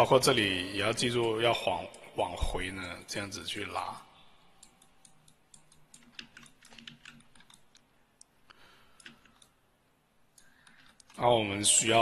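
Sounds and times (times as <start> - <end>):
keyboard and mouse clicks: 4.6 - 9.6, 10.3 - 11.2.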